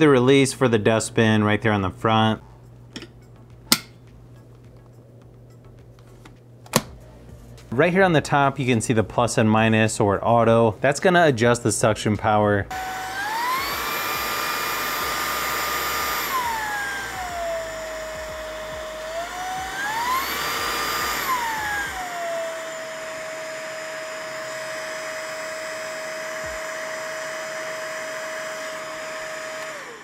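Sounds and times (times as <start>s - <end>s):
stick vacuum motor whine: 12.7s - 30.0s.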